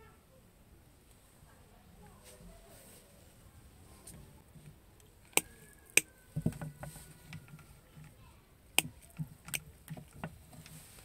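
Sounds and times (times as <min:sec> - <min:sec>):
handling rustle: 0:02.0 - 0:08.2, 0:08.9 - 0:11.0
pliers clicking and snipping: 0:05.3 - 0:06.1.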